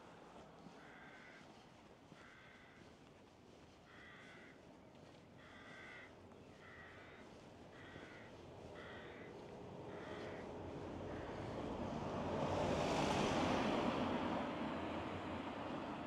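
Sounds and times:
crow cawing: 0.7s - 3.0s, 3.9s - 4.7s, 5.4s - 10.5s, 11.1s - 11.6s.

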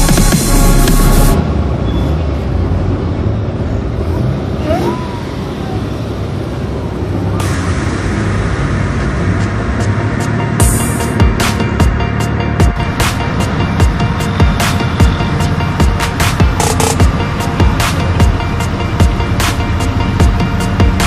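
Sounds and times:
electronic music: 0.0s - 1.4s, 7.4s - 21.0s.

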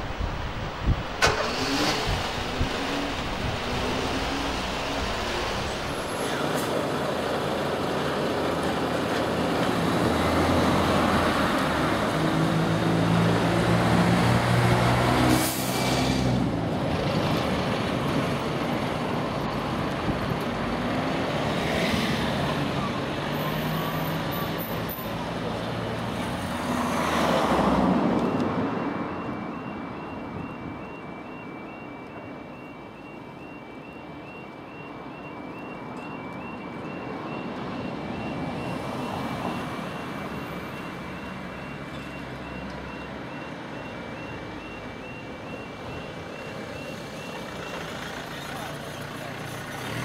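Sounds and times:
light road traffic: 0.0s - 50.0s
level crossing warning alarm: 27.3s - 48.0s.

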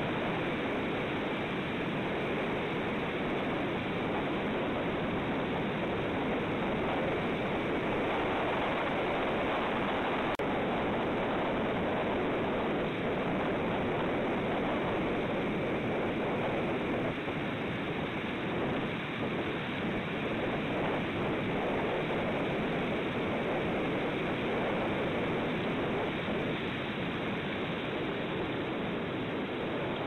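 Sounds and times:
wind: 0.0s - 30.0s.

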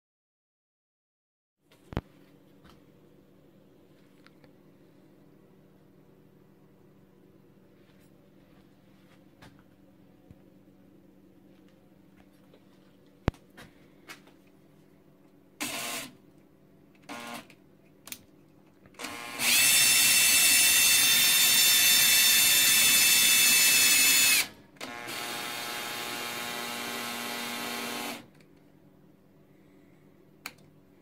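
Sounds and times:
cordless drill whining: 15.6s - 16.2s, 17.0s - 17.5s, 19.0s - 28.3s.

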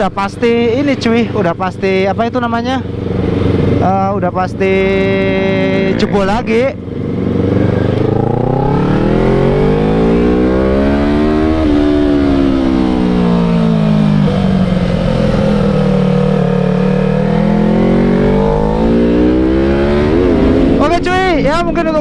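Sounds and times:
motorcycle engine running: 0.0s - 22.0s
wind rumble on microphone: 17.7s - 22.0s.

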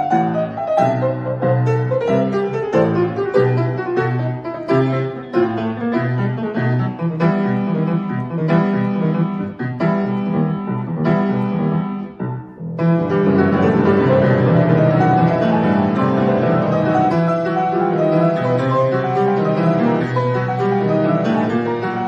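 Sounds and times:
solo grand piano: 0.0s - 22.0s.

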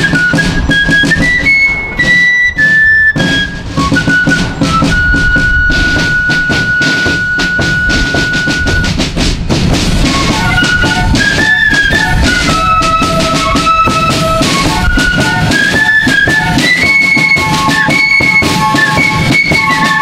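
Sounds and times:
flute band playing: 0.0s - 20.0s
bass drum drumming: 3.4s - 16.8s.

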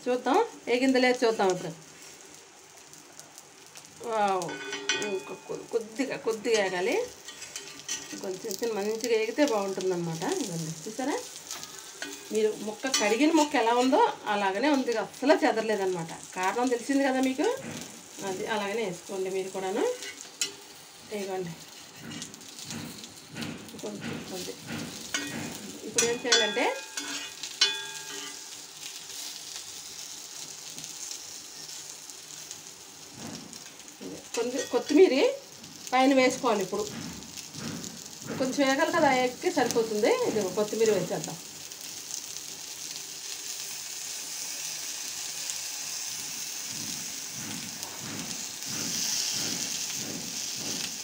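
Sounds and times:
fish sizzling in oil: 0.0s - 51.0s
metal spatula clinking on griddle: 4.4s - 5.7s, 6.6s - 8.2s, 11.5s - 12.3s, 25.1s - 28.6s, 34.3s - 35.0s.

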